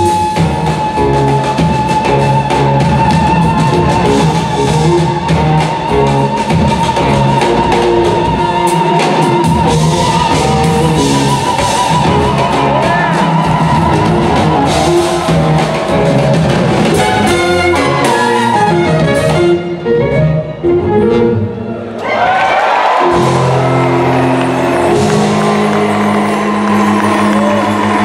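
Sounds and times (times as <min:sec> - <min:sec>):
jazz fusion band playing: 0:00.0 - 0:22.0, 0:22.8 - 0:28.0.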